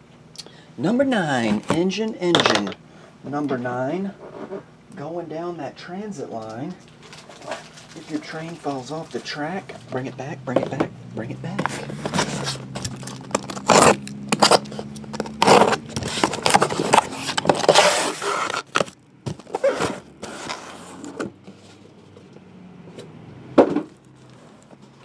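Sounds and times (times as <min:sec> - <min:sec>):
packaging rustling: 0:06.8 - 0:09.9, 0:11.6 - 0:22.3, 0:23.9 - 0:25.0
boxes scraping: 0:11.4 - 0:22.3, 0:23.8 - 0:25.0
cardboard tearing: 0:11.6 - 0:21.1.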